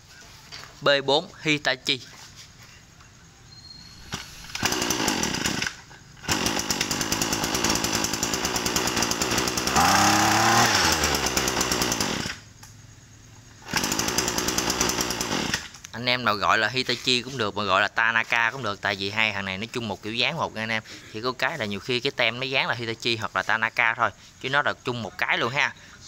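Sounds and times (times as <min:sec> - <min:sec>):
brush cutter engine running: 0:04.1 - 0:12.8, 0:13.6 - 0:15.9.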